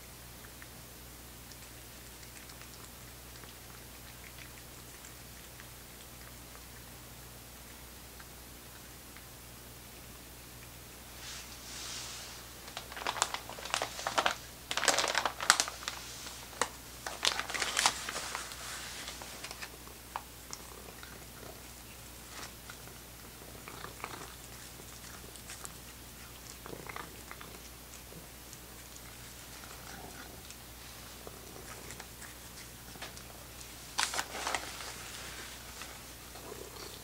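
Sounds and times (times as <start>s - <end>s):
plastic bag crinkling: 12.4s - 19.9s, 33.0s - 36.2s.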